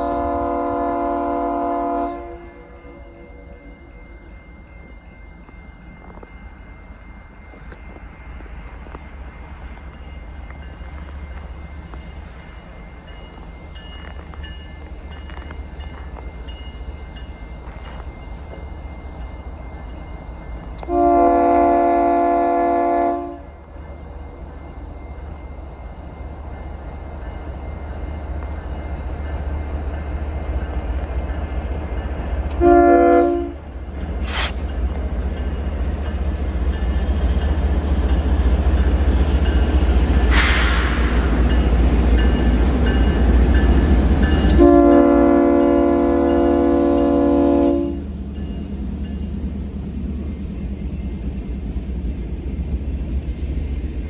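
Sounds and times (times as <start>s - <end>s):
locomotive horn blasts: 0.0s - 3.2s, 20.8s - 23.5s, 32.5s - 33.7s, 44.5s - 48.1s
freight train rolling: 0.0s - 54.0s.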